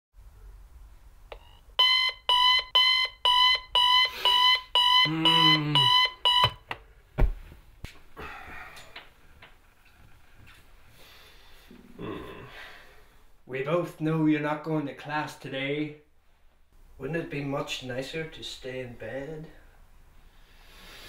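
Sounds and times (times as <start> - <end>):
alarm clock beeping: 1.8 - 6.6
man groaning: 5.1 - 6.0, 12.0 - 12.7
thump: 7.2 - 7.4.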